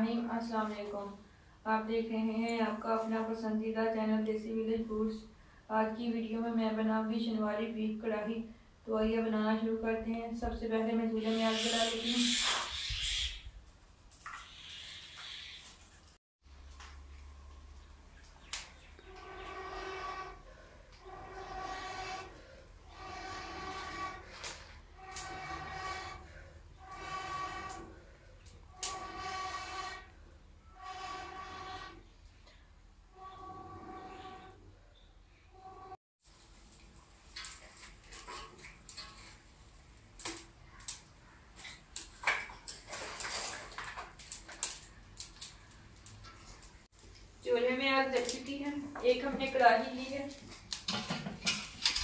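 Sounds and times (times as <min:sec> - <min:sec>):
wood fire crackling: 0:43.8 - 0:52.0.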